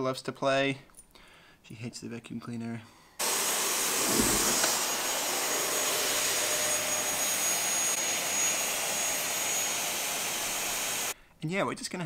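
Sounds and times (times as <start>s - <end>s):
vacuum cleaner running: 3.2s - 11.2s.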